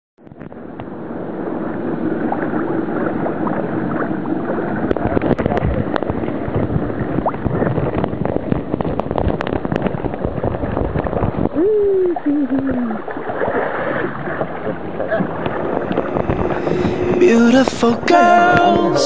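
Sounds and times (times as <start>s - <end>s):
wind noise: 0.2s - 19.0s
sea water sloshing and splashing: 1.2s - 11.6s, 12.3s - 17.8s.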